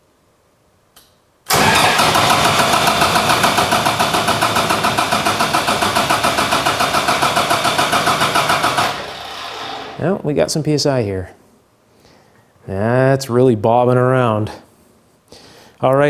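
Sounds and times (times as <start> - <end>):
diesel engine cranking without firing: 1.5 - 10.0.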